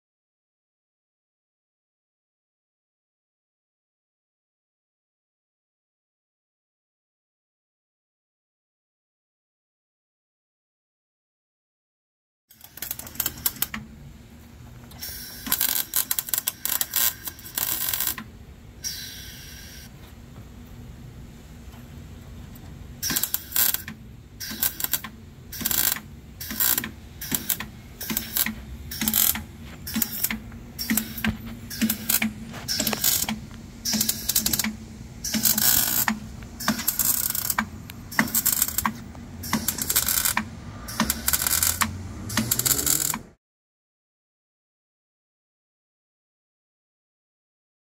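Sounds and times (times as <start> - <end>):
air tool bursts: 15.0 - 18.2, 18.8 - 19.9, 23.0 - 43.2.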